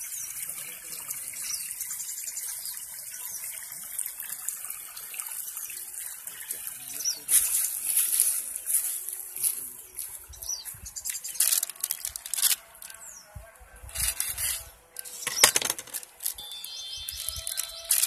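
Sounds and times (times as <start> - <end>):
plastic packet crinkling: 11.3 - 13.0, 17.1 - 18.0.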